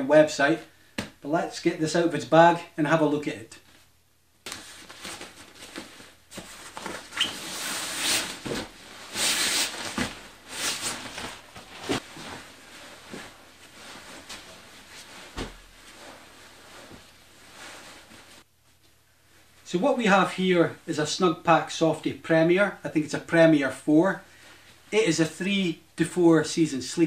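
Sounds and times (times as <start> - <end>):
sleeping bag fabric rustling: 4.6 - 18.5.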